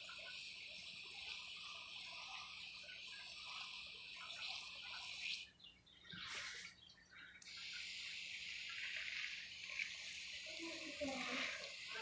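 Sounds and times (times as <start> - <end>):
watering wand spray hissing: 0.0 - 5.5, 7.4 - 12.0.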